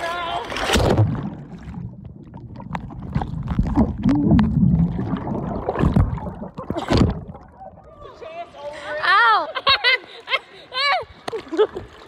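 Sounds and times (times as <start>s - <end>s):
water sloshing and gurgling: 0.0s - 8.5s
sharp splashes and knocks: 0.5s - 7.4s.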